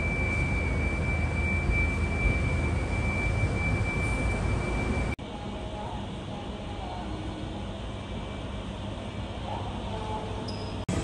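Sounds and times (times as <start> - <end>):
steady high-pitched tone: 0.0 - 8.6.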